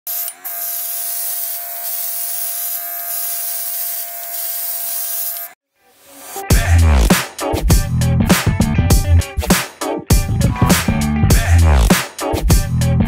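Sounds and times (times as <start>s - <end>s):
airbrush compressor whine: 0.1s - 5.6s
airbrush spraying hiss: 0.1s - 6.5s.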